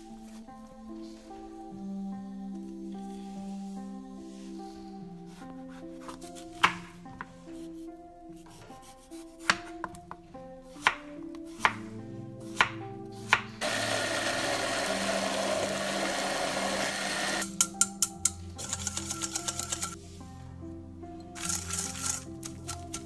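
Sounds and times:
blender running: 0:13.6 - 0:17.4
whisk clicking against metal bowl: 0:17.4 - 0:20.0.

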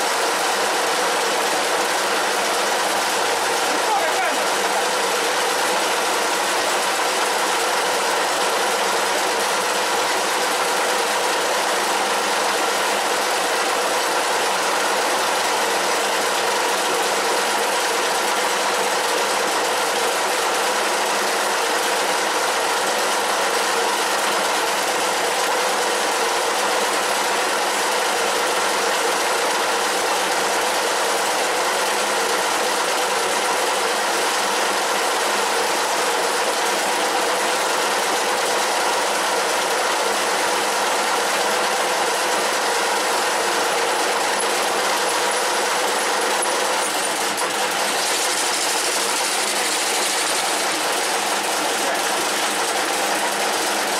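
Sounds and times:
lathe running with gear whine: 0:00.0 - 0:53.9
drill boring into metal: 0:42.5 - 0:53.9.

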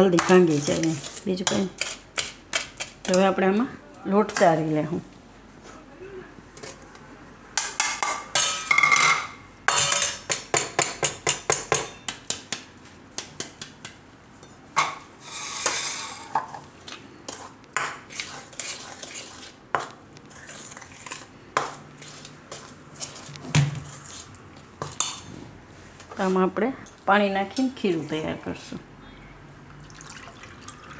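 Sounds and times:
spoon clinking and scraping bowl: 0:00.2 - 0:03.2, 0:07.8 - 0:10.4, 0:15.2 - 0:16.5.

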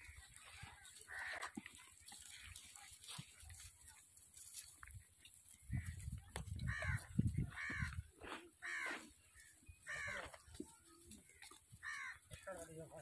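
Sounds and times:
crow cawing: 0:01.1 - 0:01.5, 0:06.7 - 0:07.9, 0:08.6 - 0:09.0, 0:09.9 - 0:10.3, 0:11.8 - 0:12.3.

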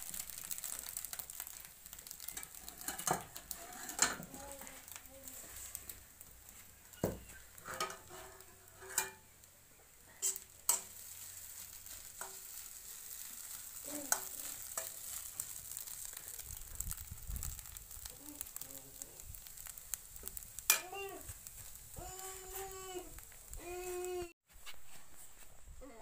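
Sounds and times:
faint steady hiss: 0:00.0 - 0:26.0
metal spatula scraping a pan: 0:00.2 - 0:05.9, 0:06.9 - 0:09.3, 0:10.1 - 0:16.1, 0:19.5 - 0:22.7.

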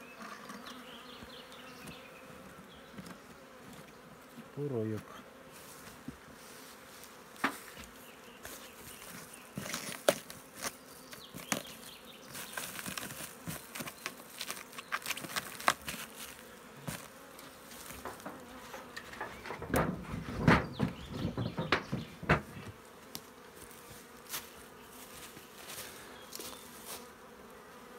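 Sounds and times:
bees buzzing: 0:00.0 - 0:27.9
rustles and knocks on hive: 0:05.0 - 0:27.1.

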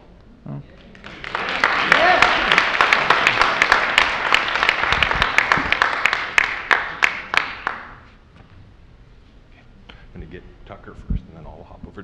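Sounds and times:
audience applauding: 0:00.8 - 0:08.2.

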